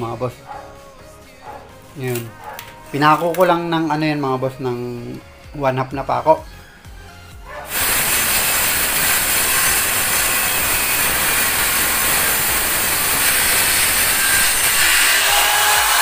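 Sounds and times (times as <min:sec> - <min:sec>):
circular saw cutting plywood: 0:07.7 - 0:16.0.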